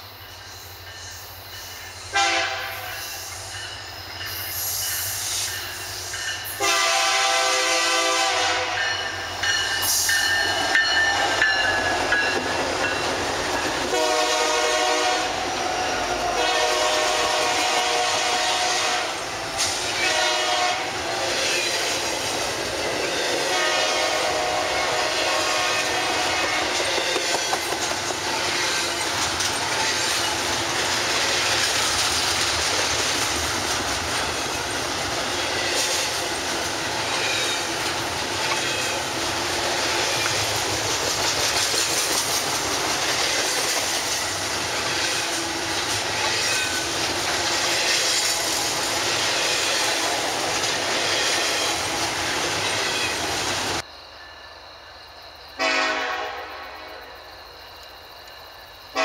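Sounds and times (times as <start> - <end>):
freight train wheels rumbling: 0.0 - 53.9
train horn blasts: 2.1 - 3.1, 6.6 - 9.1, 13.9 - 21.9, 23.4 - 27.5, 55.6 - 57.1.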